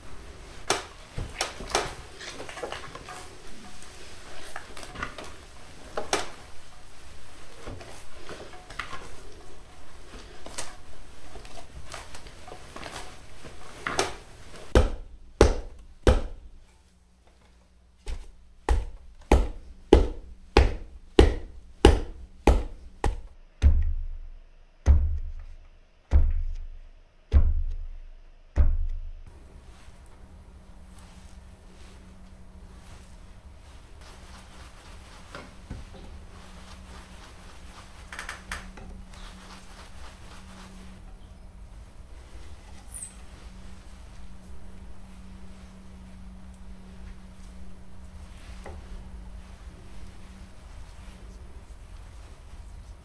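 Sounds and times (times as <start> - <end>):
hands kneading dough: 0.0 - 53.0
pestle pounding dough in mortar: 14.7 - 16.6, 18.1 - 24.2, 24.8 - 25.5, 26.1 - 29.2.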